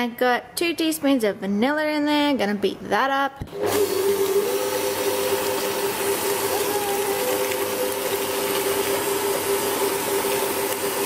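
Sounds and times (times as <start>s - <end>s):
stand mixer motor whine: 3.5s - 11.0s.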